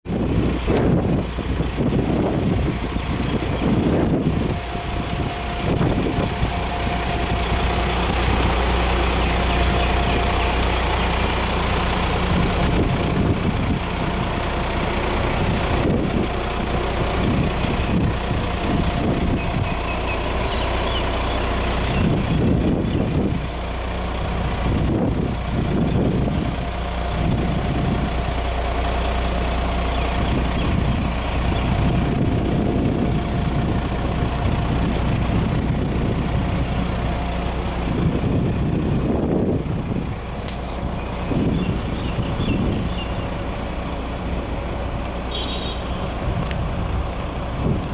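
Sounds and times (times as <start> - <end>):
diesel engine rumbling at idle: 0.0 - 47.9
steady high whine: 1.9 - 34.2.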